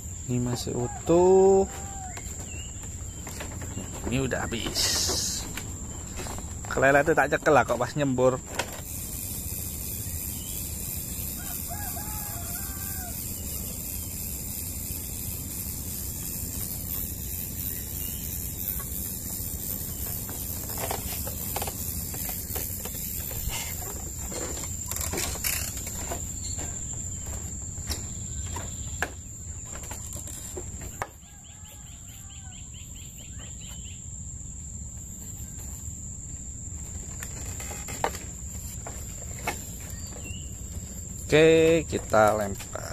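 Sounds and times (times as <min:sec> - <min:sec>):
rooster crowing: 0:00.6 - 0:02.4, 0:11.2 - 0:13.6, 0:31.0 - 0:32.8.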